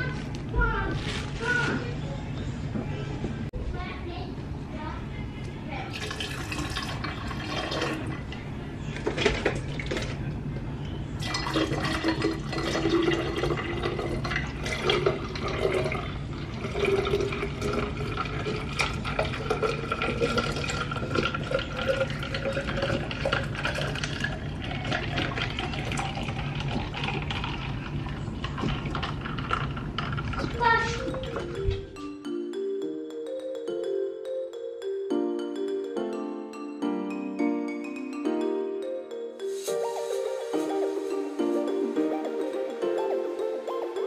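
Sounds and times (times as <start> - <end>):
juice pouring into carafe over ice: 5.9 - 8.2, 11.2 - 30.6.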